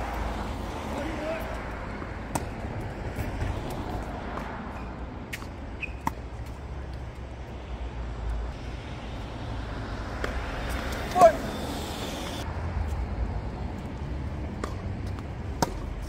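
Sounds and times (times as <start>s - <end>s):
tennis ball struck by racket: 2.2s - 2.6s, 14.6s - 15.9s
tennis ball bouncing: 2.2s - 6.6s, 14.5s - 16.0s.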